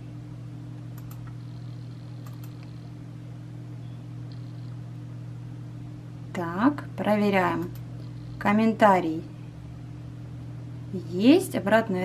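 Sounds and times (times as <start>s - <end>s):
low hum: 0.0s - 12.0s
faint mouse clicks: 1.0s - 1.4s.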